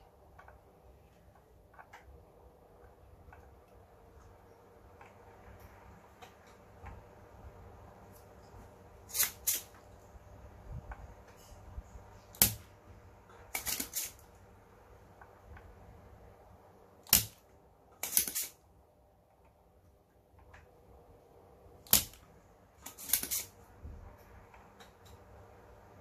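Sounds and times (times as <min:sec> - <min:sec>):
desoldering pump snapping: 0:17.0 - 0:17.4, 0:18.0 - 0:18.6, 0:21.8 - 0:22.2.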